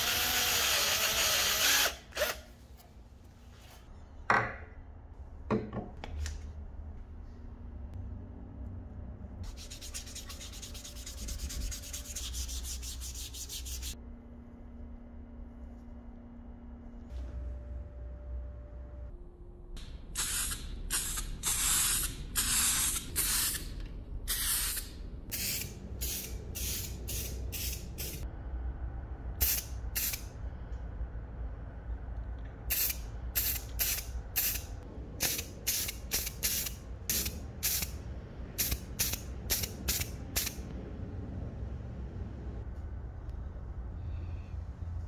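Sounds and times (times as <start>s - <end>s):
spray paint hissing: 20.1s - 23.7s, 24.3s - 28.2s, 29.4s - 30.3s, 32.7s - 38.0s, 38.6s - 40.6s.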